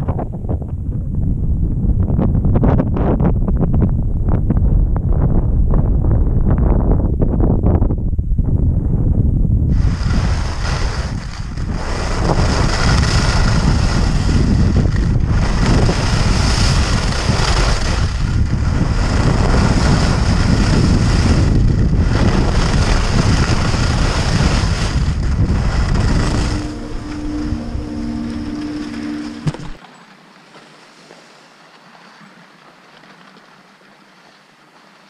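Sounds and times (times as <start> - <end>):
wind buffeting microphone: 0.0 - 29.8
low two-note hum: 0.2 - 29.8
skis hissing over snow: 9.7 - 29.8.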